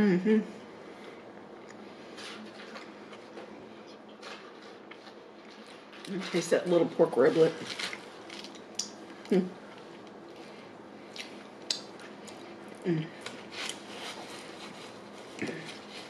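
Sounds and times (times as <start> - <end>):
low voice hums: 0.0 - 0.6, 9.3 - 9.6, 12.8 - 13.2
mouth smacking clicks: 11.2 - 12.4.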